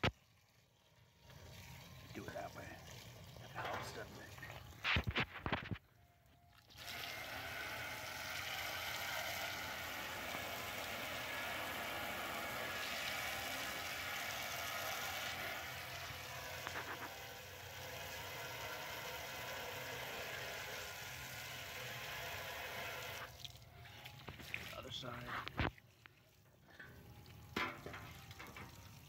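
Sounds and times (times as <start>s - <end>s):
hose water spraying on metal: 6.7s - 29.0s.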